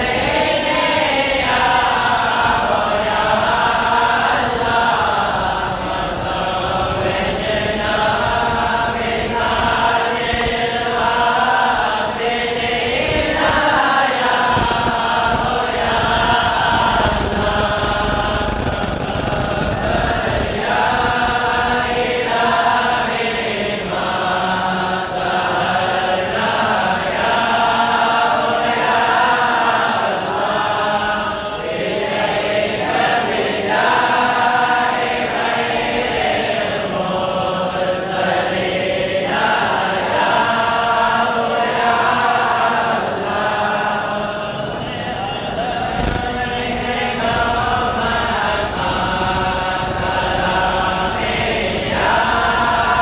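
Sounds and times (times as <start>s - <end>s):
group chanting verses: 0.0s - 53.0s.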